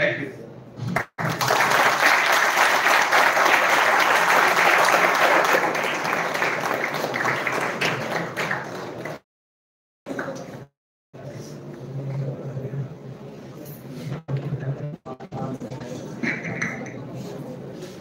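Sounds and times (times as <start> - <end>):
audience applauding: 1.0 - 9.2.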